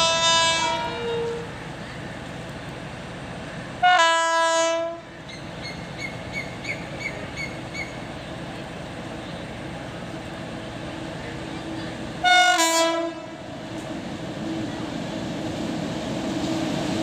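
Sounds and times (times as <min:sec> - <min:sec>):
locomotive horn blast: 0:00.0 - 0:01.5, 0:03.8 - 0:05.1, 0:12.2 - 0:13.4
train rumbling: 0:00.0 - 0:17.0.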